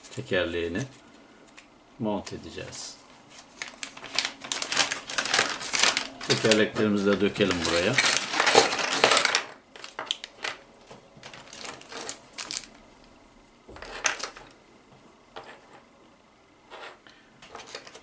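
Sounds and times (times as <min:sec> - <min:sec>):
plastic bag rustling: 0:02.5 - 0:14.6, 0:16.7 - 0:18.0
plastic parts clattering on mat: 0:07.6 - 0:10.6.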